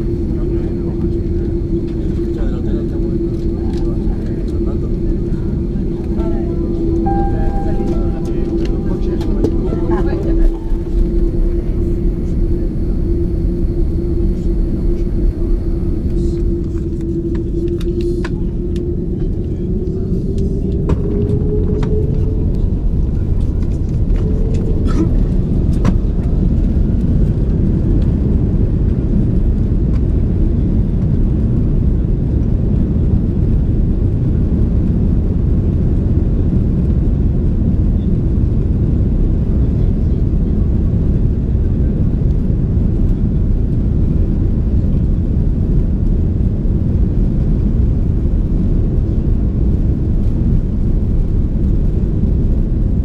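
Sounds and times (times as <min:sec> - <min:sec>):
jet engines spooling up: 0:00.0 - 0:28.4.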